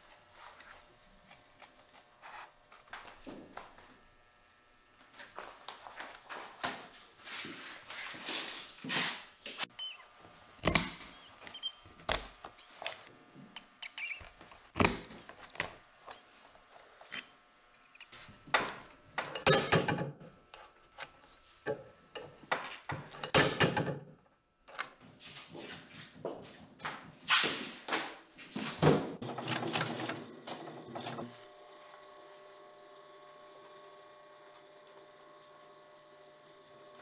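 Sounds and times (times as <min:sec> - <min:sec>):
leather squeaks: 0:09.7 - 0:10.1, 0:11.1 - 0:11.9, 0:12.5 - 0:12.9, 0:13.8 - 0:14.4.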